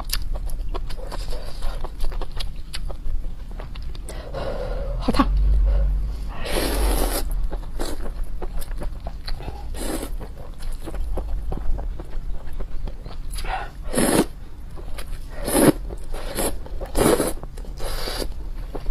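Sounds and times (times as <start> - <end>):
person slurping noodles: 6.3 - 8.0, 13.8 - 14.3, 15.3 - 18.3.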